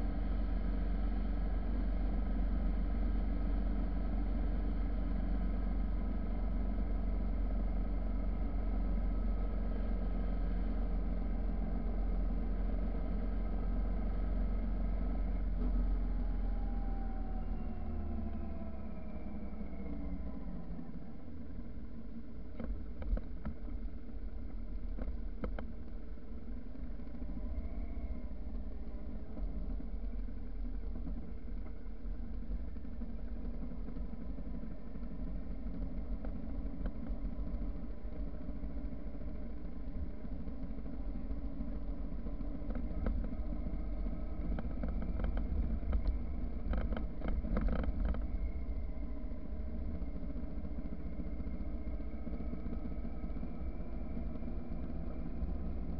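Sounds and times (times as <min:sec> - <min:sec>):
motorcycle engine cruising: 0:00.0 - 0:55.9
wind and tyres on dirt road: 0:00.0 - 0:55.9.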